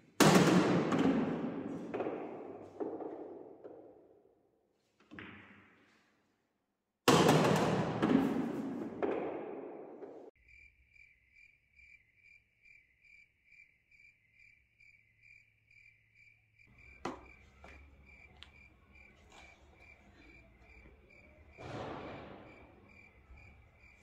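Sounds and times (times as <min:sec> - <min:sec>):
cricket chirping: 0:10.4 - 0:24.0.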